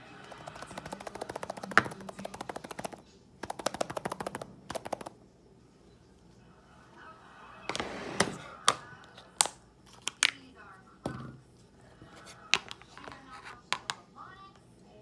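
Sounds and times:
rice rattling in plastic shaker: 0:00.3 - 0:05.1.

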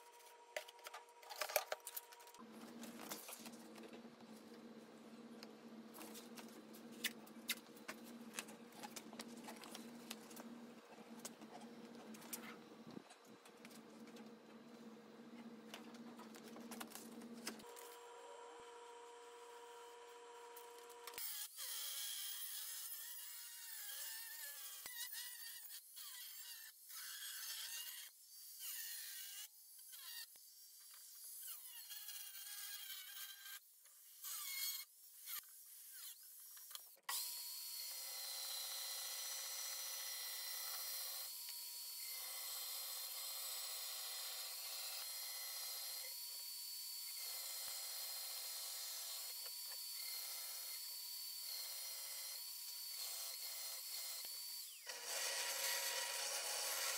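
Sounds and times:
bench power tool running: 0:53.0 - 0:56.9
angle grinder cutting steel: 0:53.3 - 0:56.9.

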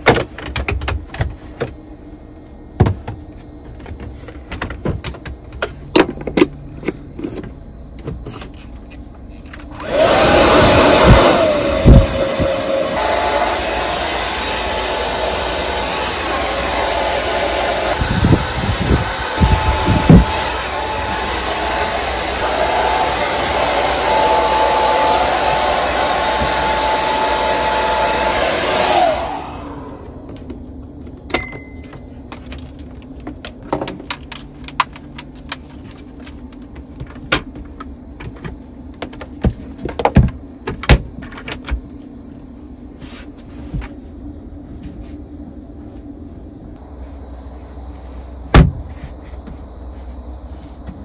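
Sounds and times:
hair dryer blowing: 0:09.7 - 0:30.1.

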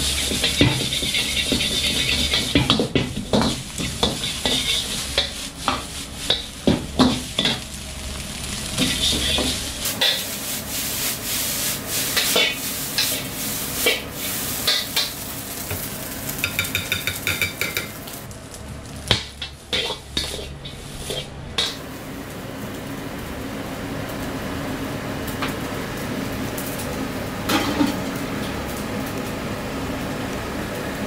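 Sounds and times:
ladle scraping and clanking on wok: 0:00.0 - 0:07.6, 0:08.8 - 0:18.0, 0:19.2 - 0:21.8
steady sizzle: 0:00.0 - 0:31.0.

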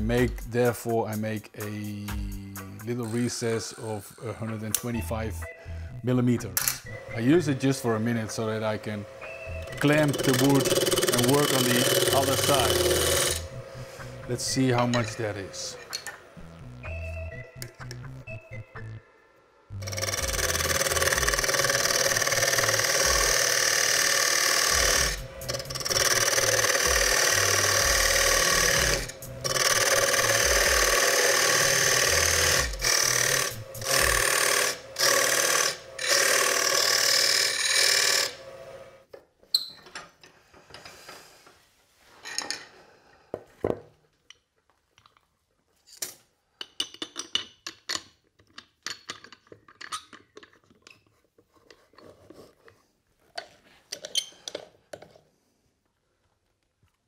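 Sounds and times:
lathe tool scraping wood: 0:07.0 - 0:15.9, 0:19.9 - 0:38.9
clicks and knocks of handling: 0:45.9 - 0:55.2.

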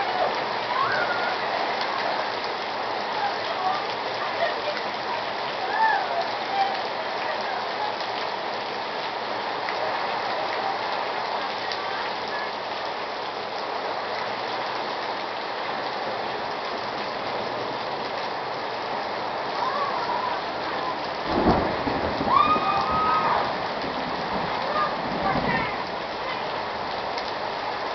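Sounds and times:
heavy rain: 0:00.0 - 0:27.9
low thunder rumble: 0:21.2 - 0:26.0.

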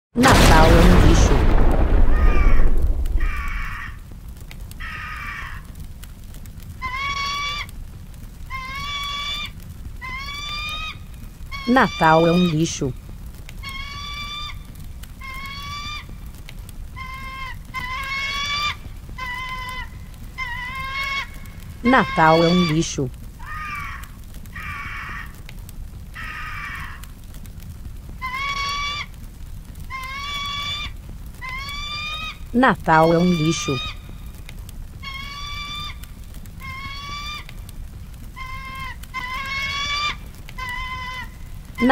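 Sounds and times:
eagle cries: 0:00.2 - 0:04.1, 0:04.8 - 0:05.7, 0:06.8 - 0:07.8, 0:08.4 - 0:12.9, 0:13.6 - 0:25.4, 0:26.1 - 0:27.4, 0:28.0 - 0:41.9
explosion rumble: 0:00.2 - 0:04.8.

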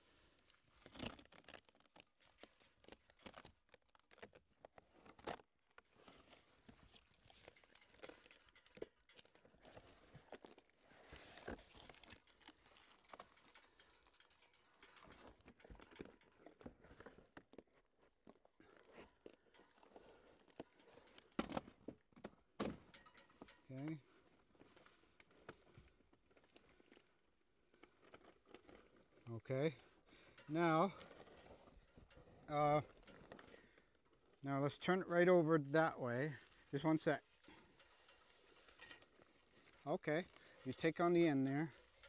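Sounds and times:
bark crackling and tearing: 0:00.1 - 0:23.6.

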